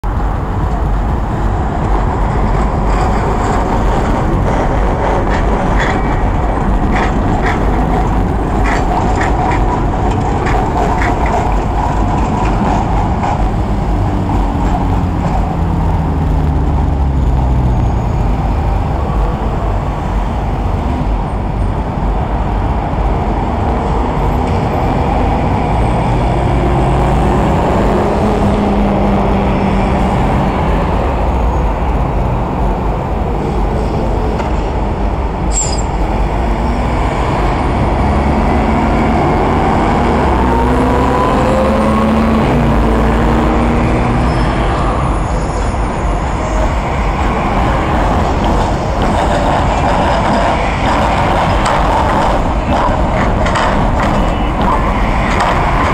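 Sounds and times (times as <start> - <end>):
tram wheels clicking on track: 0.0 - 17.5, 44.6 - 55.9
city traffic rumble: 0.0 - 55.9.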